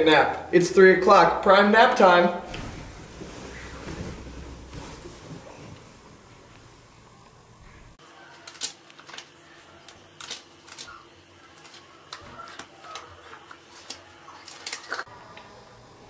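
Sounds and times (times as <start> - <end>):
book pages turning: 8.4 - 15.1.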